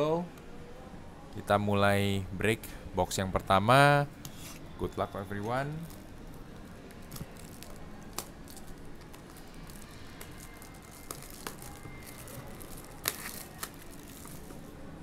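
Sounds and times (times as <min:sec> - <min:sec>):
plastic wrap tearing and crinkling: 0:05.8 - 0:14.6.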